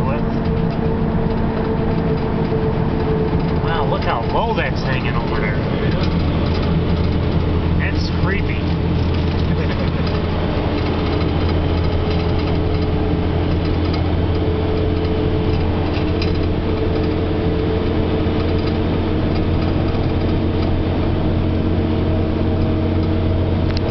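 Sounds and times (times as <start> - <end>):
car engine and road drone: 0.0 - 23.9
steady hum tones: 0.0 - 23.9.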